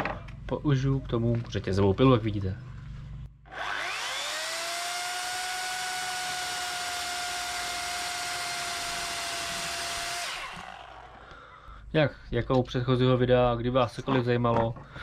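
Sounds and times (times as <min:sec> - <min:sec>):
electric chainsaw whining: 0:03.4 - 0:11.4.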